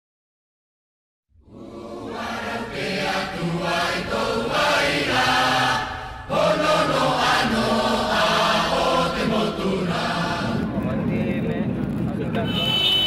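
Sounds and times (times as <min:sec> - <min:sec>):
many voices chanting: 0:01.4 - 0:10.7.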